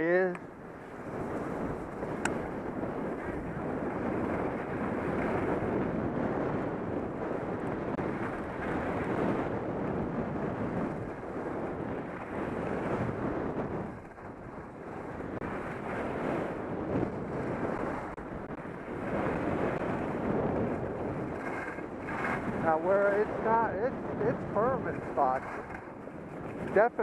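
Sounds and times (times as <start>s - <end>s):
wind on microphone: 0.0s - 27.0s
skis scraping over snow: 0.8s - 2.2s, 2.8s - 5.8s, 18.8s - 27.0s.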